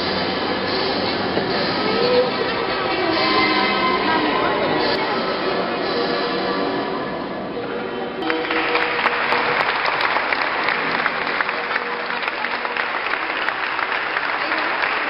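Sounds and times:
music with sustained notes: 0:00.0 - 0:15.0
crowd applauding: 0:08.2 - 0:15.0.

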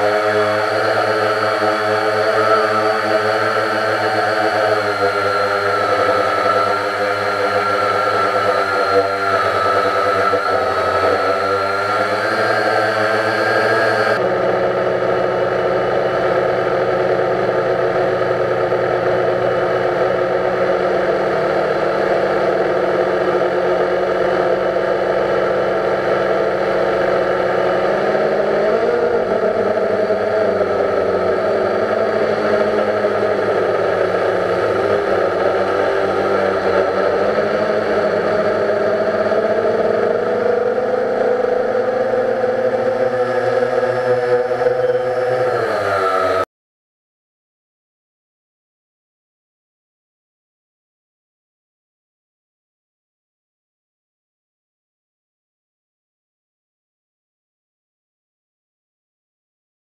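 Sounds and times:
drone propellers whirring: 0:00.0 - 0:46.5.

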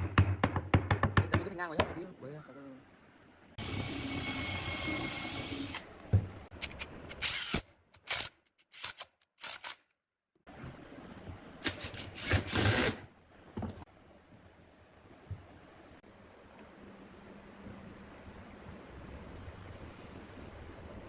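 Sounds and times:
cordless drill driving screws: 0:03.6 - 0:05.9, 0:07.1 - 0:09.8, 0:11.7 - 0:13.0.

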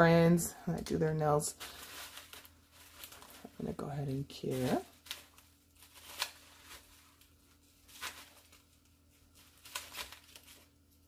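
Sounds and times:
faint steady hum: 0:00.0 - 0:11.0
bubble wrap rustling: 0:00.9 - 0:11.0.

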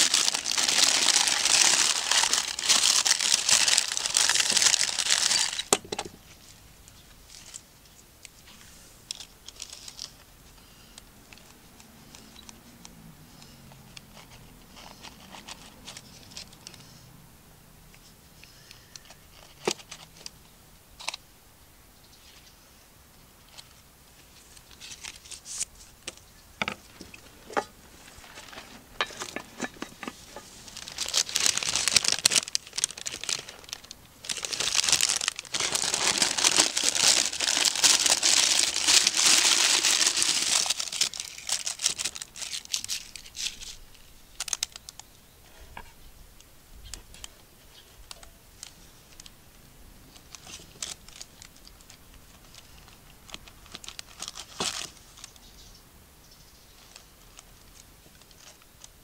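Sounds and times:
baking paper crinkling: 0:00.0 - 0:07.7, 0:23.4 - 0:45.0, 0:50.1 - 0:55.4, 0:56.8 - 0:59.0.

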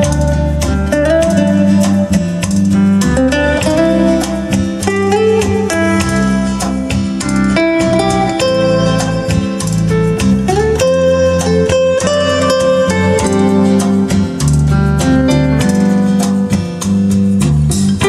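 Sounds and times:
guitar music with bass line: 0:00.0 - 0:18.0.

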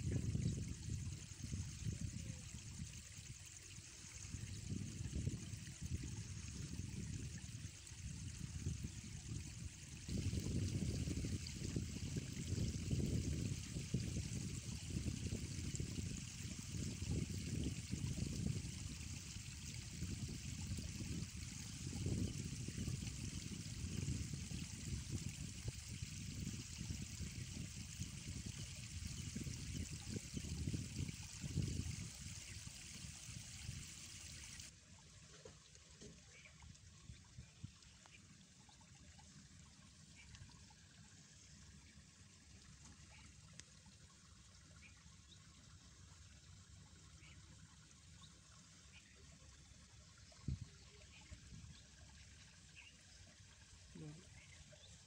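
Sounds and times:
wind buffeting microphone: 0:00.0 - 0:02.9, 0:04.3 - 0:34.6
steady river hiss: 0:30.1 - 0:34.8.

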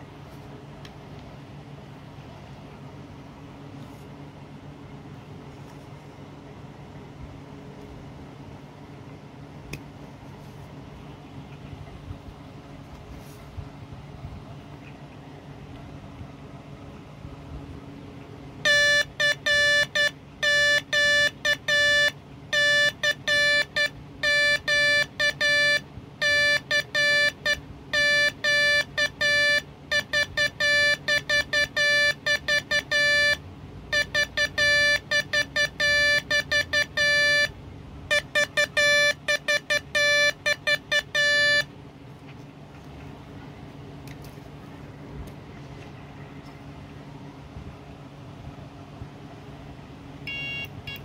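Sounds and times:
morse code buzzer tone: 0:18.6 - 0:41.7, 0:50.2 - 0:51.0.

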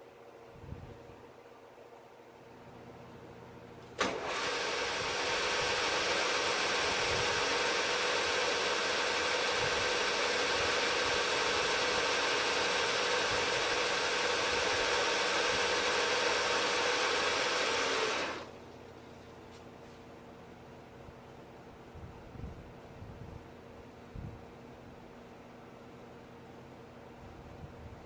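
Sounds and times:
milling machine whine: 0:04.0 - 0:18.5.

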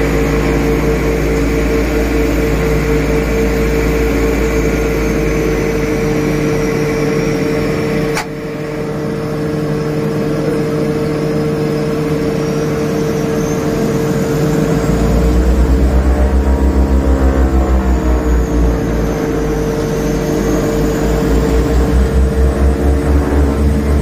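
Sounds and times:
rhythmic low engine throbbing: 0:00.0 - 0:24.0
turboprop engines humming and whining: 0:00.0 - 0:24.0
sharp click: 0:08.1 - 0:08.4.

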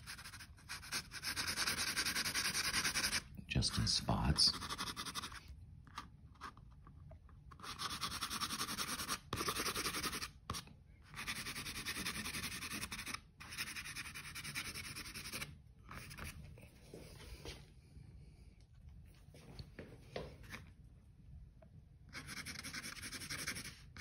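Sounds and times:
pencil scratching on paper: 0:00.0 - 0:05.4, 0:07.6 - 0:16.4, 0:22.1 - 0:24.0.

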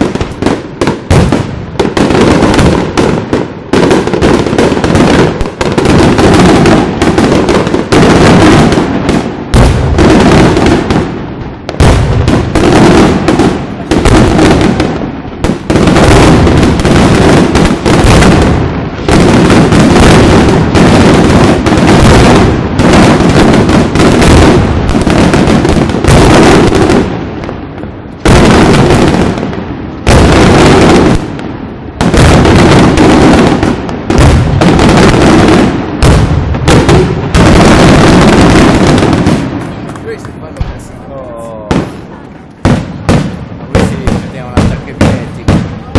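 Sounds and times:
fireworks booming and crackling: 0:00.0 - 0:45.9.

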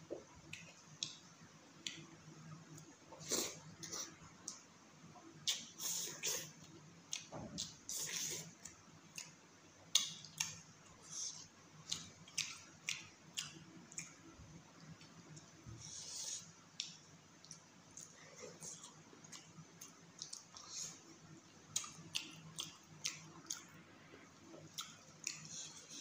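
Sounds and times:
chewing food: 0:05.5 - 0:15.5, 0:16.3 - 0:26.0.

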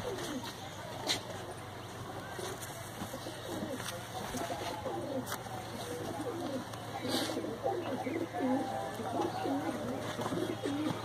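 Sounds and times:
pigeons cooing: 0:00.0 - 0:11.0.

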